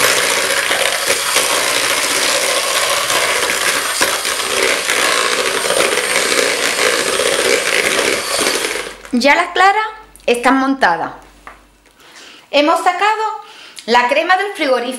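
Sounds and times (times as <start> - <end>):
electric hand mixer whipping: 0.0 - 9.2.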